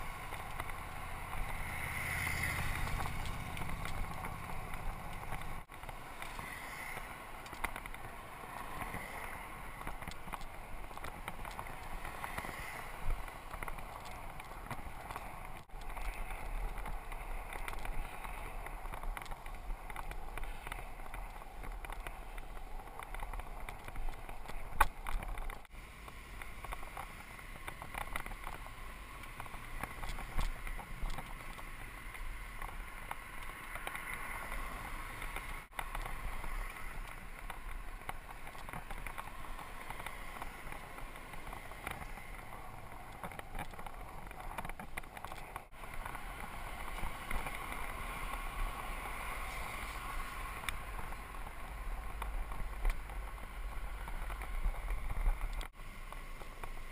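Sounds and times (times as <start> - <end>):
bike rattles and clicks: 0.0 - 56.9
bike tyres on pavement: 0.0 - 56.9.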